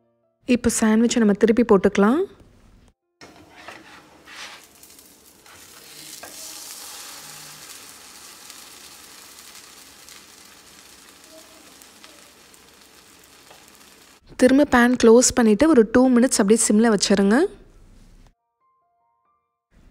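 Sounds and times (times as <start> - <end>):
butter sizzling in a pan: 4.2 - 14.3.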